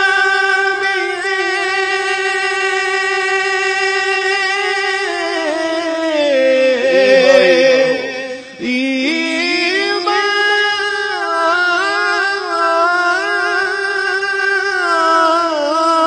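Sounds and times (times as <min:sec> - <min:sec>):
man singing melismatic line: 0:04.7 - 0:16.0
steady held drone: 0:06.7 - 0:14.4.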